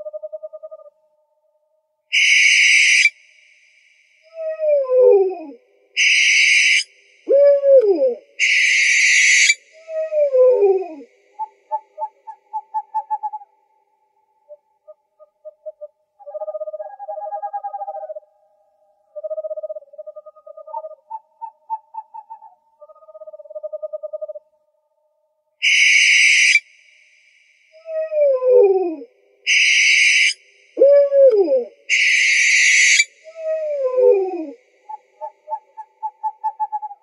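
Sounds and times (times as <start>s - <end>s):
owl hissing screech: 2.1s - 3.1s, 6.0s - 6.9s, 8.4s - 9.6s, 25.6s - 26.6s, 29.5s - 30.4s, 31.9s - 33.4s
owl rapid trills: 2.1s - 3.2s, 6.0s - 13.5s, 25.6s - 26.7s, 27.9s - 37.0s
owl wailing call: 2.1s - 3.2s, 4.3s - 13.5s, 25.6s - 26.7s, 27.8s - 37.0s.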